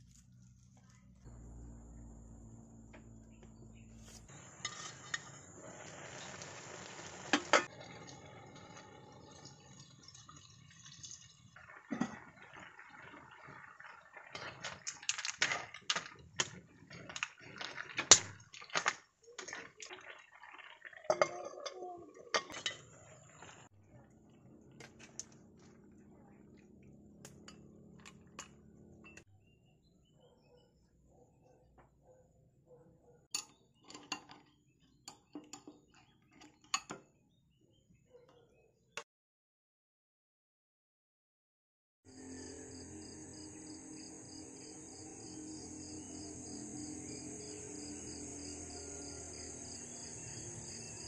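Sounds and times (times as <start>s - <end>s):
metal ladle scraping a pot: 4.0s - 5.9s.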